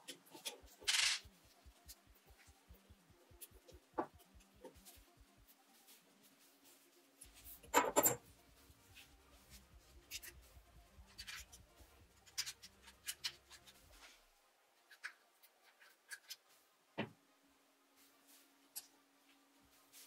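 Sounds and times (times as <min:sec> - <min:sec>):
small steel parts clicking: 0:00.1 - 0:01.3.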